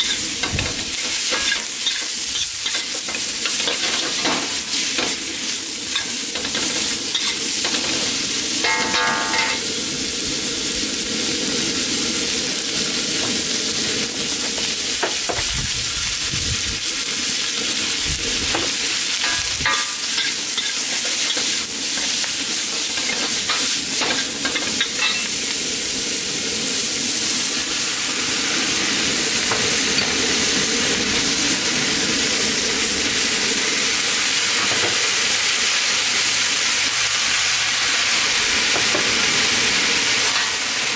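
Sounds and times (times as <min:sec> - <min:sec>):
vegetables sizzling in a wok: 0:00.0 - 0:40.9.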